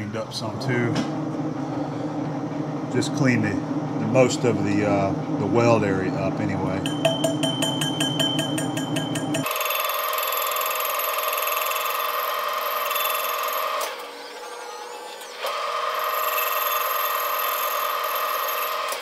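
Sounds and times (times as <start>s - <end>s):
high-pitched ringing of lathe cut: 6.8s - 19.0s.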